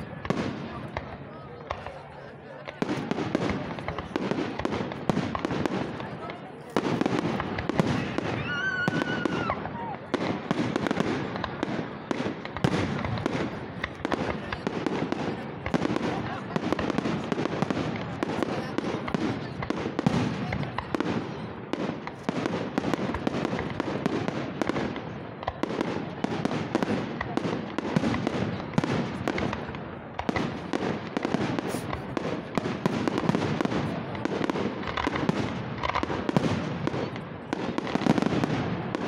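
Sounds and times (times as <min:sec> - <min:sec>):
fireworks shells bursting: 0:31.6 - 0:32.2.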